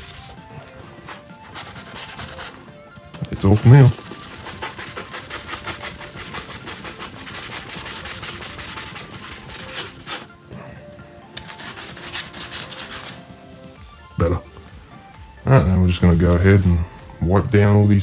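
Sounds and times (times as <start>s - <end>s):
cloth rubbing briskly: 0.0s - 2.8s, 3.4s - 10.4s, 11.4s - 13.8s, 15.7s - 18.0s
background music: 0.0s - 18.0s.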